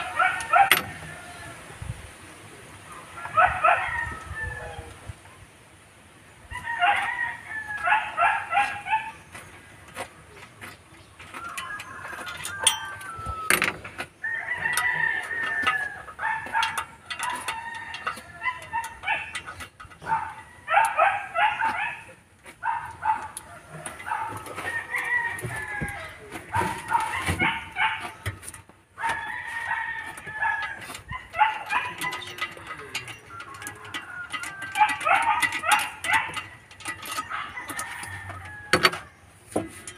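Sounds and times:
rooster crowing: 3.1 - 5.0, 6.5 - 8.8, 11.3 - 13.6, 14.2 - 22.1, 23.1 - 28.3, 29.0 - 39.1
chickens clucking: 6.5 - 39.9
sharp metallic clicks: 30.6 - 39.0.

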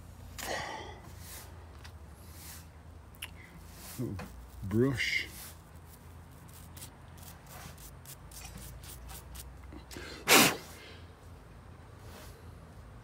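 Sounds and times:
small brush scratching: 3.6 - 9.6.

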